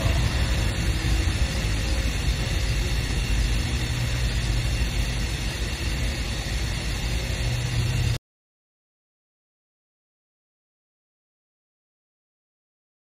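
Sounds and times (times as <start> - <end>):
even hiss: 0.0 - 8.2
steady low rumble: 0.0 - 8.2.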